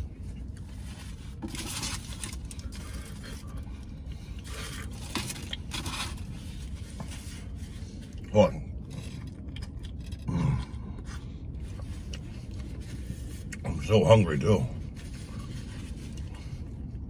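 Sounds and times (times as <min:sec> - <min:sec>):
steady low hum: 0:00.0 - 0:17.0
foil wrapper crinkling: 0:00.7 - 0:03.5.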